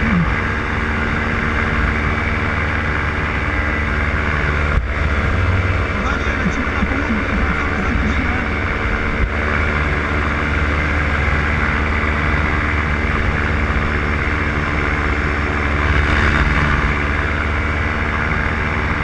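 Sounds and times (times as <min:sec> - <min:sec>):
paramotor engine droning: 0:00.0 - 0:19.0.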